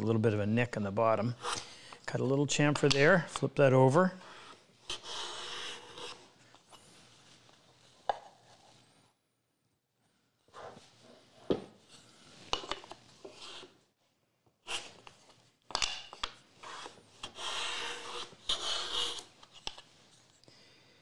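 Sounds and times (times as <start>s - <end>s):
hand plane shaving wood: 16.6s - 19.3s.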